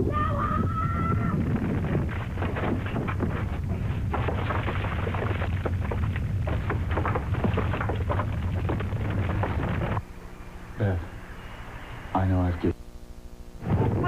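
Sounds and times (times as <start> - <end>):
deep continuous rumble: 0.0 - 12.0, 13.5 - 14.0
rocks and rubble crashing down: 1.4 - 10.0.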